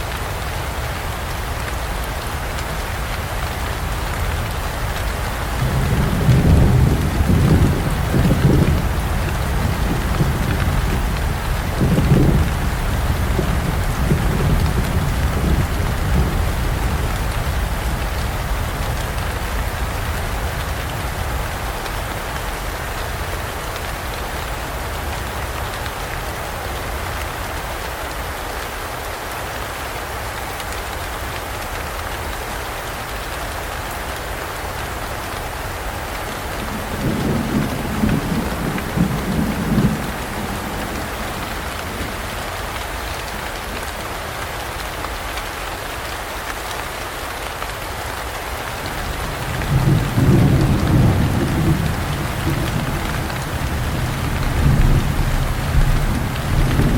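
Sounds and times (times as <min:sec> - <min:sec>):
heavy rain falling: 0:00.0 - 0:56.9
thunder rumbling: 0:05.4 - 0:19.2, 0:36.7 - 0:42.3, 0:49.0 - 0:56.9.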